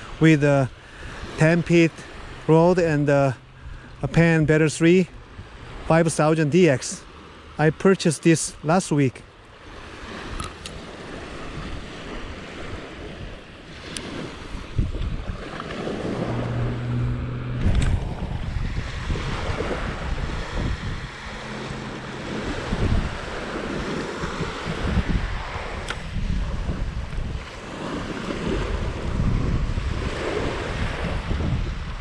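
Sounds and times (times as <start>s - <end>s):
small waves lapping on sand: 0.0s - 32.0s
wind buffeting the microphone: 9.7s - 32.0s
low steady hum: 16.0s - 23.7s.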